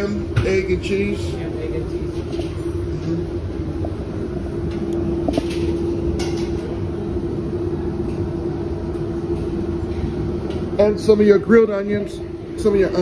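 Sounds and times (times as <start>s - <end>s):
machine hum: 0.0s - 13.0s.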